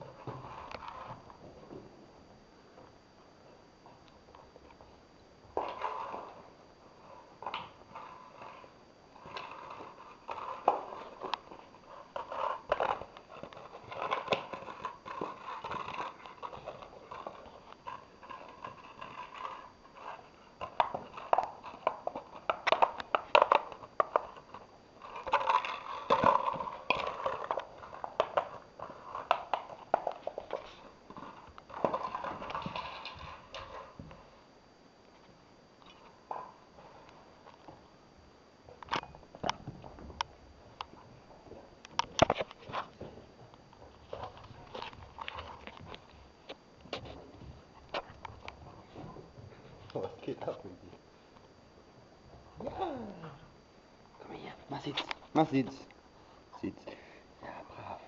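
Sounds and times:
puppy chewing plastic bottle: 9.3s - 33.8s.

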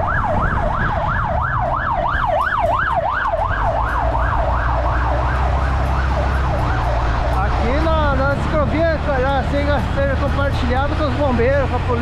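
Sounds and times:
siren wailing: 0.0s - 9.2s
street traffic rumble: 0.0s - 12.0s.

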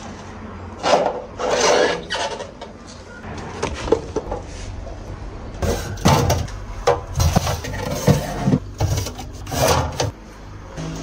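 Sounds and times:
plastic bins scraping and knocking: 5.6s - 10.2s.

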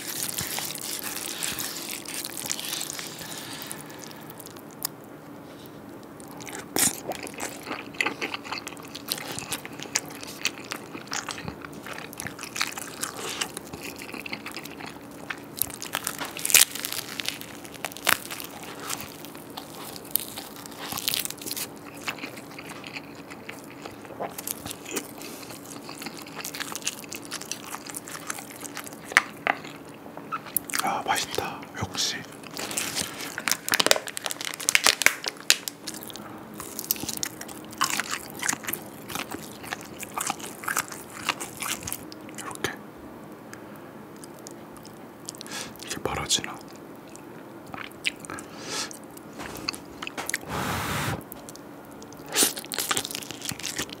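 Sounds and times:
crunchy bites and chewing: 0.0s - 5.0s, 6.2s - 31.6s, 32.2s - 42.6s, 47.7s - 54.0s
faint steady hum: 0.0s - 54.0s
person eating noodles: 47.8s - 51.3s.

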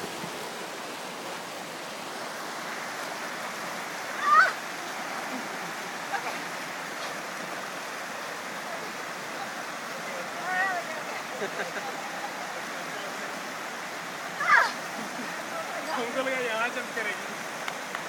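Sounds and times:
stream flowing over boulders: 0.0s - 18.0s
person crying out: 14.4s - 14.8s.

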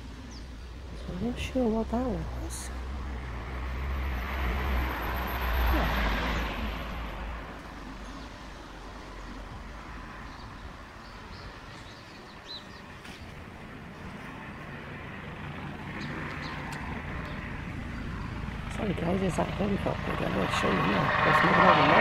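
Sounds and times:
distant helicopter droning: 0.0s - 22.0s
rushing noise: 13.7s - 22.0s.

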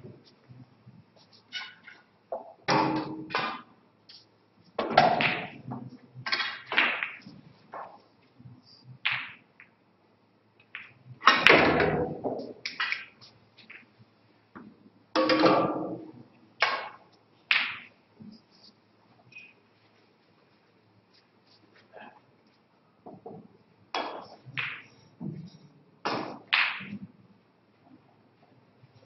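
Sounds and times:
snooker balls clicking: 1.6s - 8.2s, 9.0s - 9.8s, 10.6s - 18.4s, 23.0s - 27.2s.

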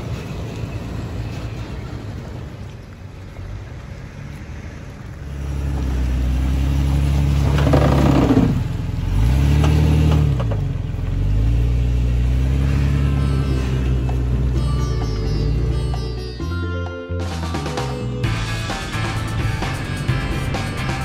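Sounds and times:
car engine running at low revs: 0.0s - 16.2s
engine revving: 5.2s - 16.4s, 17.4s - 21.0s
rattling scrabble over dirt: 7.2s - 8.8s.

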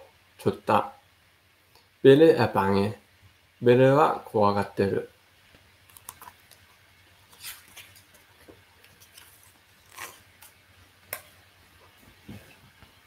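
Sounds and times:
paper rustling: 7.2s - 10.6s.

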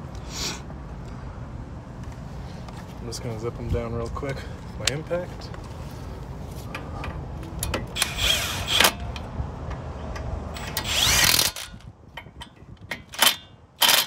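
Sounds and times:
cordless impact wrench bursts: 7.8s - 9.2s, 10.5s - 11.9s, 13.0s - 14.0s.

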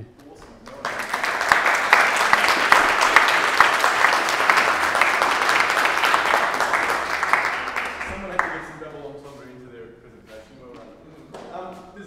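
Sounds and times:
audience applauding: 0.2s - 8.9s.

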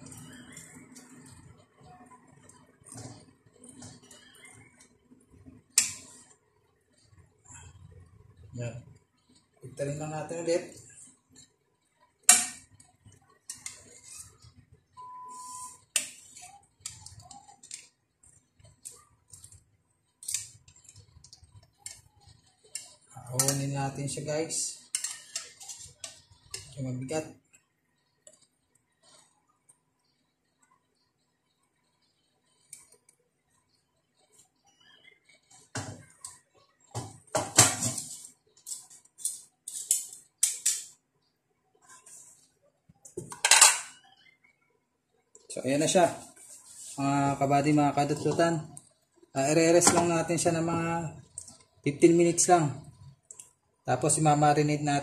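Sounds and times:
fork scraping metal pot: 24.8s - 26.8s, 37.6s - 40.9s.

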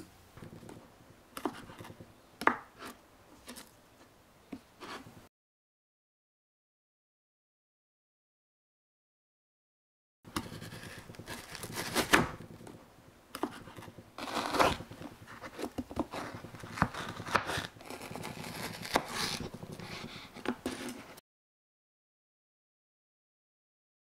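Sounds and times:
serrated knife sawing frozen bark: 10.4s - 12.3s, 13.4s - 14.8s, 16.1s - 20.9s.

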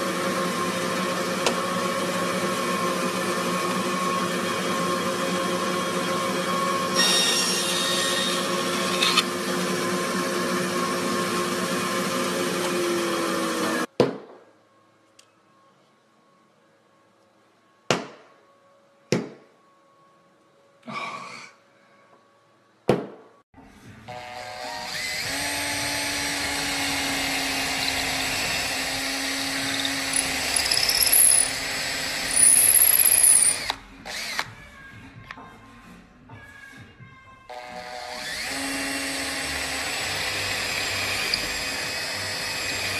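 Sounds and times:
cordless drill boring: 0.1s - 9.3s, 24.1s - 34.5s, 37.5s - 42.9s
drill squealing: 6.4s - 9.3s, 24.2s - 34.4s, 37.5s - 42.9s.

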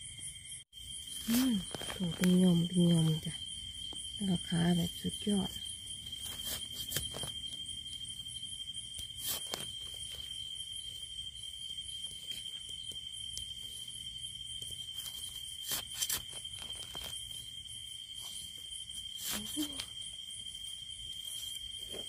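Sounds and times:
fast pulsing insect chirp: 0.0s - 22.0s
insects trilling: 0.0s - 22.0s
crackles and knocks: 1.0s - 4.2s.

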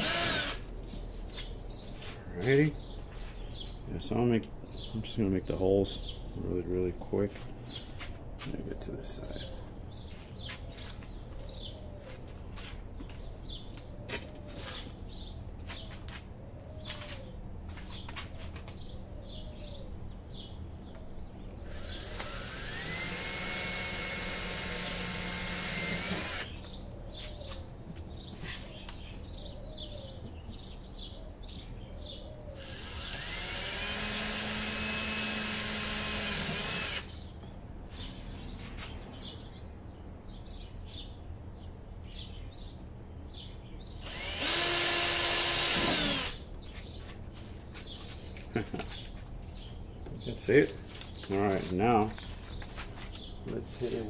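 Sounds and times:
cordless drill whining: 0.0s - 0.7s, 21.6s - 26.5s, 32.6s - 37.1s, 44.0s - 46.4s
birds chirping: 0.0s - 54.0s
bird cooing: 9.2s - 9.7s, 28.6s - 30.4s.

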